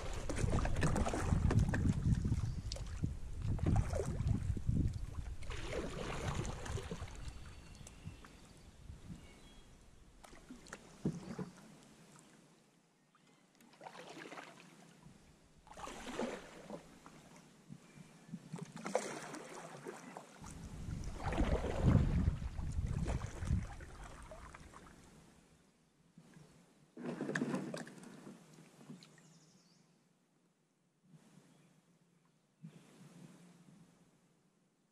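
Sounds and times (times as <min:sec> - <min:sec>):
water swishing against hull: 0:00.0 - 0:09.4, 0:10.2 - 0:12.4, 0:13.7 - 0:17.5, 0:18.3 - 0:25.4, 0:26.2 - 0:29.2
wind rumble on microphone: 0:00.0 - 0:09.4, 0:20.5 - 0:24.7.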